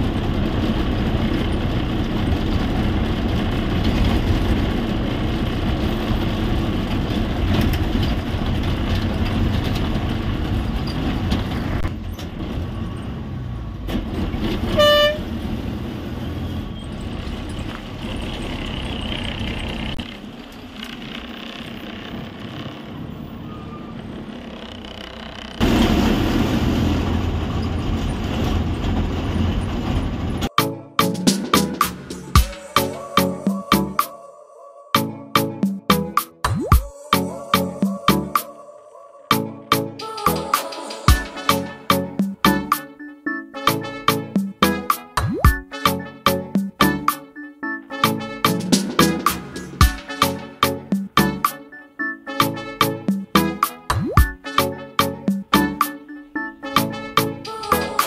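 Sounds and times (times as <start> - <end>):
bus engine and road noise: 0.0 - 34.2, 35.4 - 58.0
bus horn toot: 14.6 - 15.4, 41.2 - 46.5, 47.7 - 50.9, 52.0 - 58.0.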